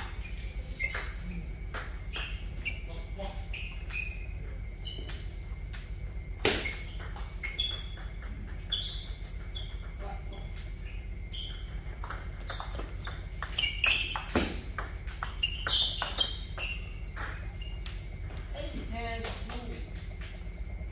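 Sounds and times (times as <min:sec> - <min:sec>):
table tennis ball clicking: 0:11.9 - 0:18.5.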